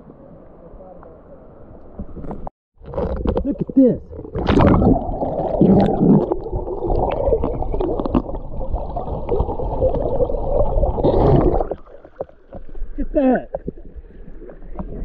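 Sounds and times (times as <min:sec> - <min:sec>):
underwater rushing gurgling water: 0:04.1 - 0:15.0.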